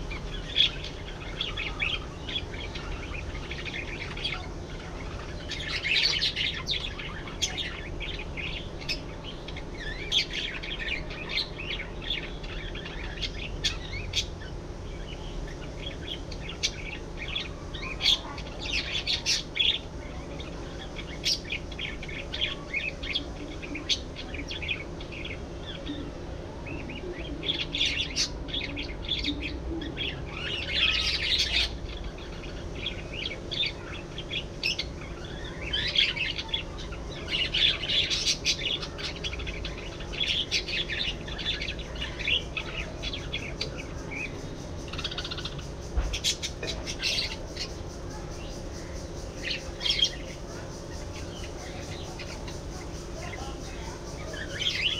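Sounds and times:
budgerigars chirping: 0:26.8 - 0:54.9.

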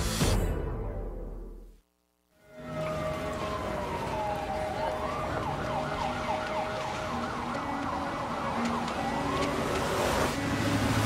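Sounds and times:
street traffic noise: 0:02.4 - 0:11.0
emergency siren wailing and yelping: 0:02.5 - 0:11.0.

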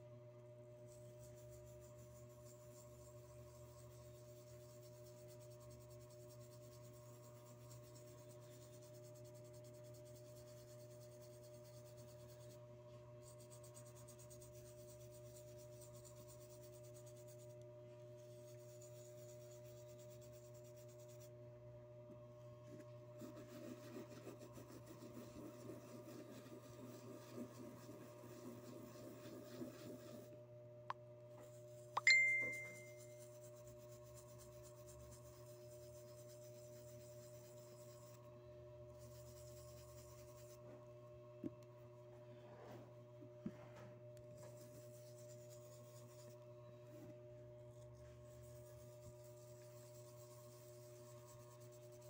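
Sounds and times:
steady low hum: 0:00.0 - 0:52.0
toothbrush scrubbing metal: 0:00.9 - 0:12.6, 0:23.3 - 0:30.4, 0:32.0 - 0:38.2, 0:48.1 - 0:52.0.

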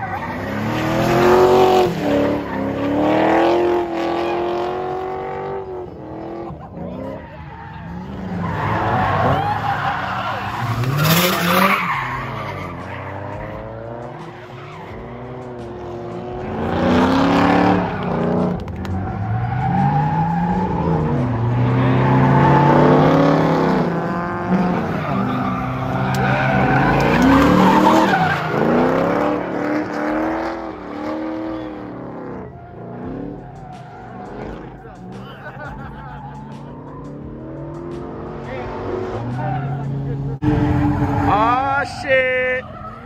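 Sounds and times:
car engine revving: 0:00.0 - 0:43.0
tires screeching: 0:00.0 - 0:43.0.

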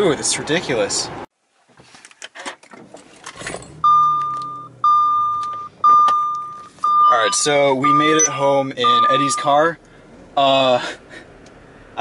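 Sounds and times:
car warning chime beeps: 0:03.8 - 0:09.7.

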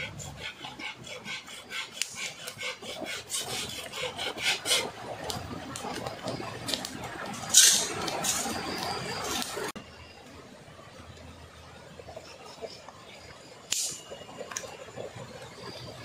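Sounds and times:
blade scraping wood: 0:00.0 - 0:04.9.

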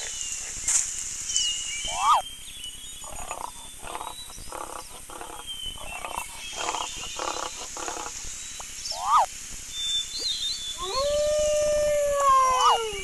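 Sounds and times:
faint birdsong: 0:00.0 - 0:13.0
lion grunting: 0:03.1 - 0:08.2.

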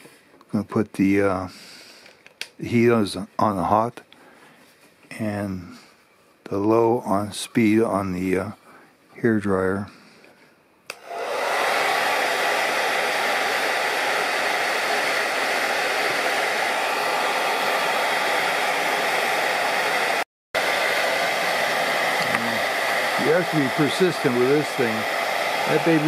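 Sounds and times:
hair dryer switch click: 0:10.9 - 0:11.2
hair dryer running: 0:10.9 - 0:26.0.

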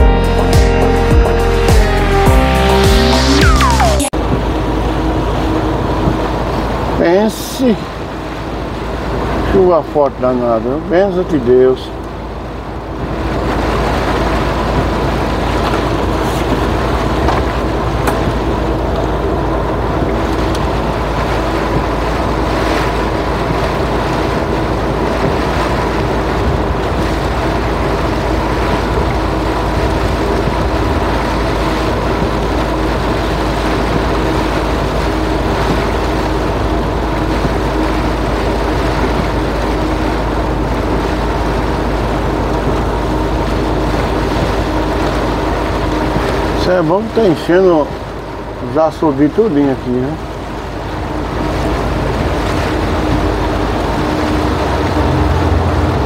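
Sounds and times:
truck engine drone: 0:00.0 - 0:56.0
rain and tyres hissing on wet road: 0:04.2 - 0:56.0.

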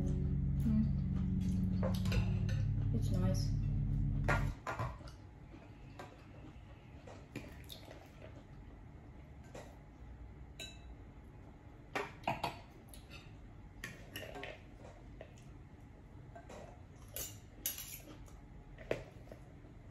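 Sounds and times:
cutlery clinking on plates: 0:17.0 - 0:18.2.

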